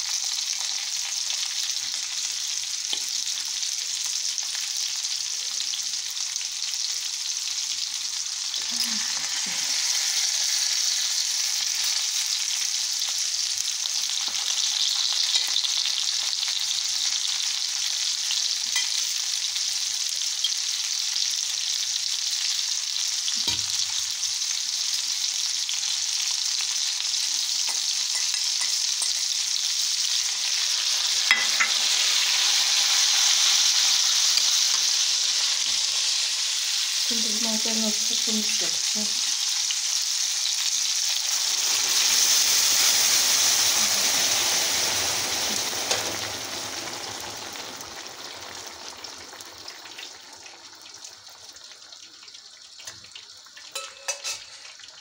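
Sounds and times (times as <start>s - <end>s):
food sizzling in hot oil: 0.0s - 55.0s
liquid pouring into pan: 41.4s - 55.0s.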